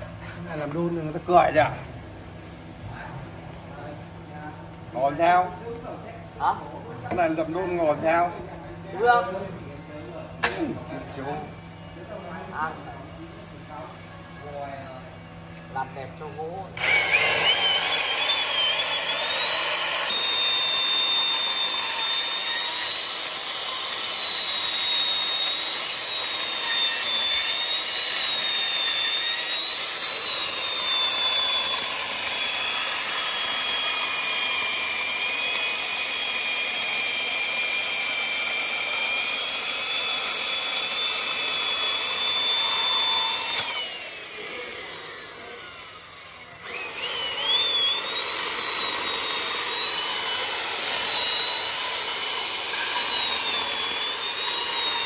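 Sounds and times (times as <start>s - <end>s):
electric power tool motor whining: 16.8s - 55.0s.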